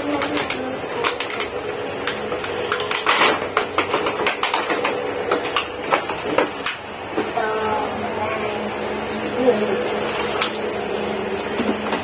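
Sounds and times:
plastic toys clicking and clacking: 0:00.0 - 0:06.8.

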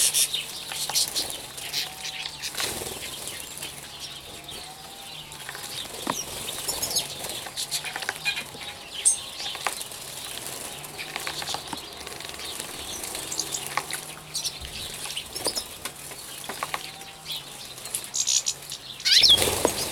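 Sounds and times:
birds splashing in water: 0:00.0 - 0:16.7, 0:18.6 - 0:19.9
wings fluttering: 0:00.0 - 0:19.9
high bird chirps: 0:18.1 - 0:19.9.

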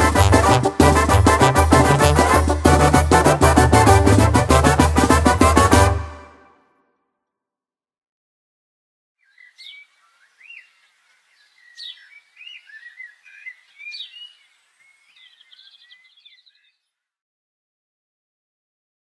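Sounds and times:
songbirds singing: 0:09.2 - 0:17.1.

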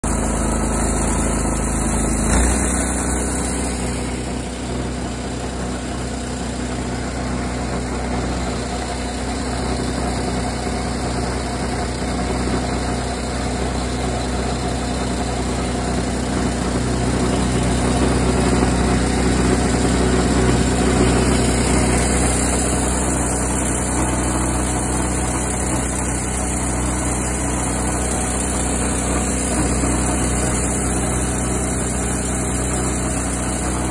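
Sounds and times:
small gasoline engine idling: 0:00.0 - 0:33.9.

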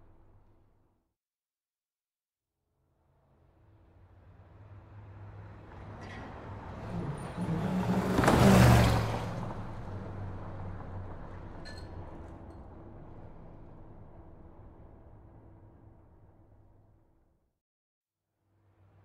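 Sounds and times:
steady traffic noise: 0:03.6 - 0:17.0
vehicle passing close by: 0:04.5 - 0:15.2.

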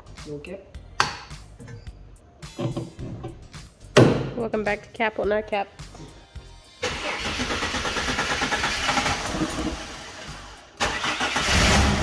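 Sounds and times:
car engine starting and running: 0:06.8 - 0:12.0.

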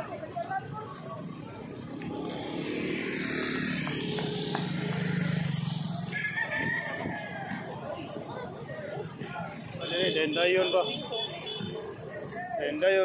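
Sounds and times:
motorcycle engines running: 0:00.0 - 0:10.3.

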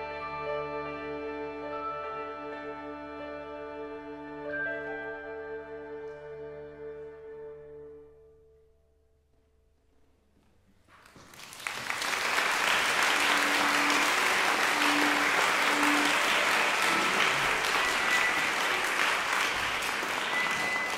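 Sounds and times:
audience applause: 0:11.2 - 0:20.9
music note: 0:12.8 - 0:20.9.

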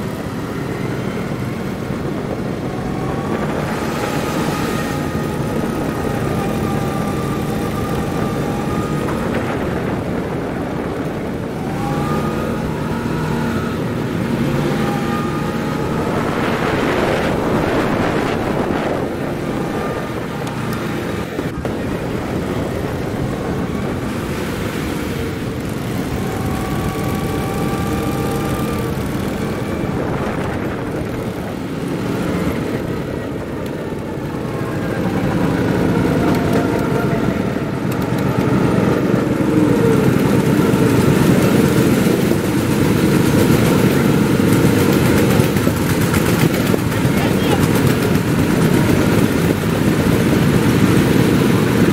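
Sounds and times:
broad rush of noise: 0:00.0 - 0:51.9
go-kart engines racing: 0:00.0 - 0:51.9.

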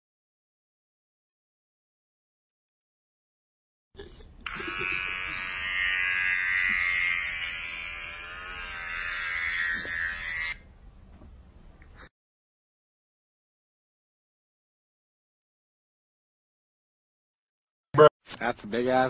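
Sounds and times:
electric hair clipper buzz: 0:04.4 - 0:10.6.

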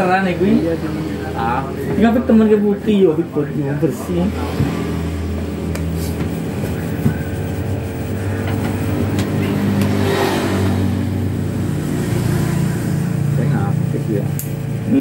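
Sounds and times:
electric hair clippers buzzing: 0:07.3 - 0:13.2.

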